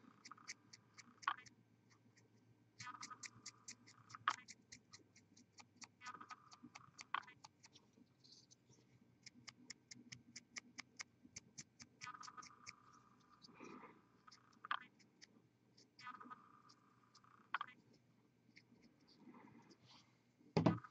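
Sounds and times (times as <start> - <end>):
faint even ticking: 0.0 - 7.8, 9.2 - 13.5.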